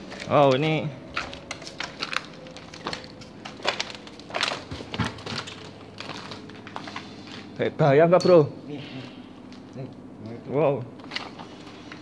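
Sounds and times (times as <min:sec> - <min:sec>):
footsteps crunching over rubble: 0:00.0 - 0:07.6.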